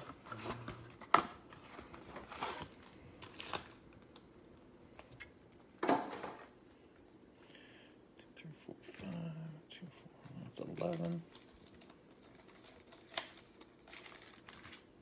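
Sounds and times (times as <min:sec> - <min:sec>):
wrapped card packs rustling: 0:00.0 - 0:04.3, 0:10.4 - 0:15.0.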